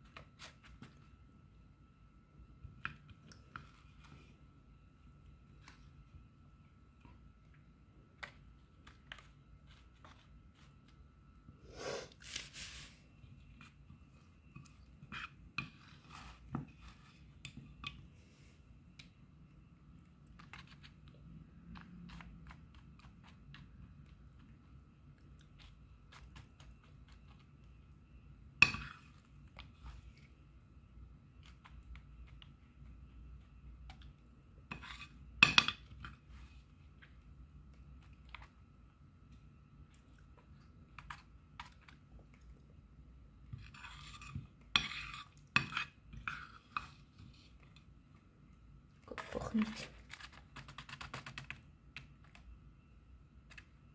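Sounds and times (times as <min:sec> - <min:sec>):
metal spoon scraping and tapping: 0:28.6 - 0:29.2, 0:34.6 - 0:36.2, 0:43.5 - 0:47.1.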